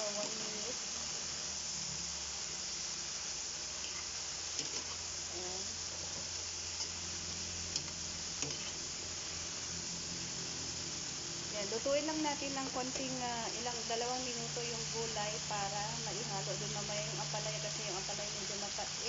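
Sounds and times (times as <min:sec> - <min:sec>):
food sizzling in a wok: 0:00.0 - 0:19.0
spatula clicking and scraping: 0:04.6 - 0:05.0, 0:07.8 - 0:08.8.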